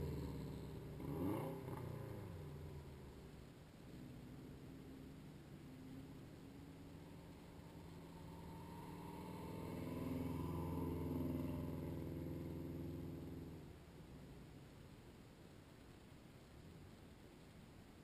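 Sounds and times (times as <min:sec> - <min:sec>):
rally car engine passing by: 0:06.6 - 0:13.6.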